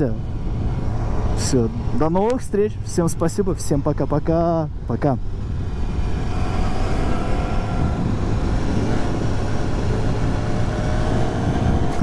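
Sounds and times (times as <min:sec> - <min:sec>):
wind noise on microphone: 0:05.4 - 0:12.0.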